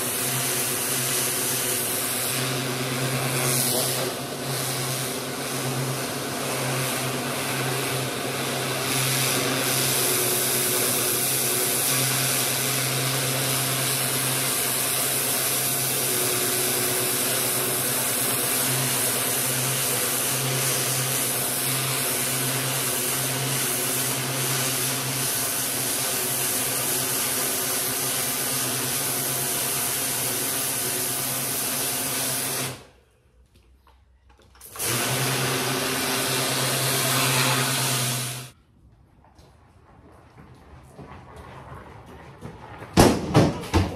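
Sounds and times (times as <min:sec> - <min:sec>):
water jet hissing: 0:00.0 - 0:32.8
pressure washer hum: 0:00.0 - 0:33.0, 0:34.6 - 0:38.6.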